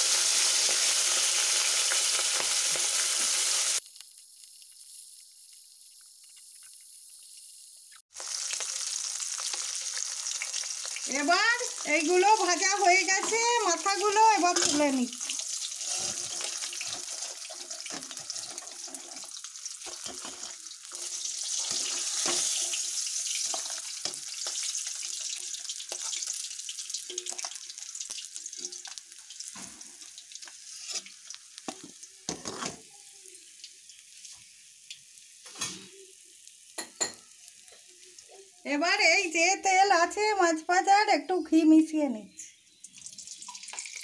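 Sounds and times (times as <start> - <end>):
hot oil sizzling: 0.0 - 44.0
metal spatula scraping a pan: 14.4 - 24.7, 30.6 - 32.9.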